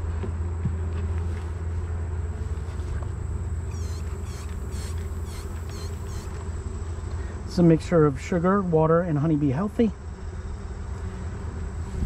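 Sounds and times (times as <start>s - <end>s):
honeybees humming: 0.6s - 12.0s.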